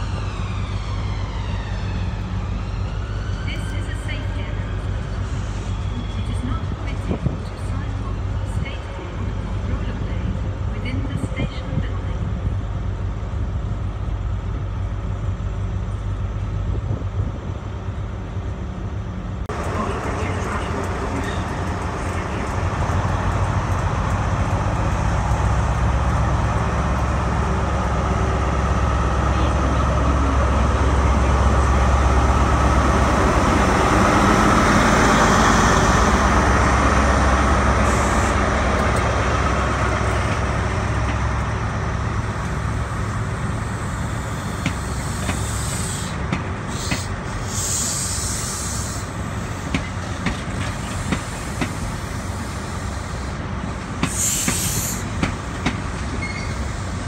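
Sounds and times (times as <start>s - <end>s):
train moving past: 0.0s - 57.0s
diesel engine drone: 17.7s - 57.0s
air hiss: 43.7s - 49.7s, 54.0s - 55.4s.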